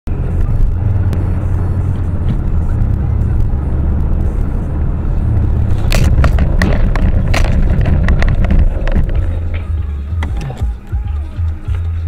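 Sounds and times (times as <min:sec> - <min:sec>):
car engine and road rumble: 0:00.1 - 0:12.0
road collision clatter: 0:00.3 - 0:12.0.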